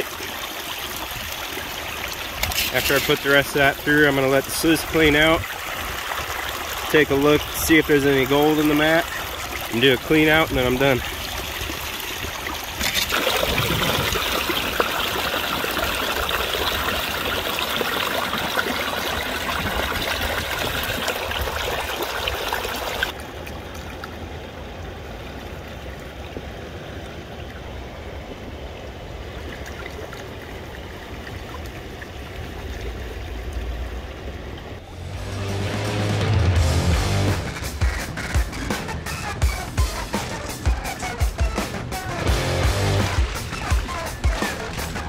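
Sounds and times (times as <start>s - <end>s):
river water rushing through sluice: 0.0s - 35.2s.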